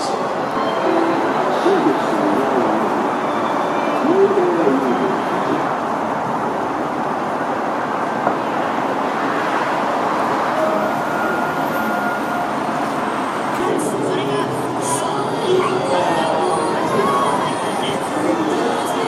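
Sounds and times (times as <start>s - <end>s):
passer-by's voice: 0.0s - 3.2s, 3.9s - 5.8s, 13.5s - 19.0s
city street traffic: 0.0s - 19.0s.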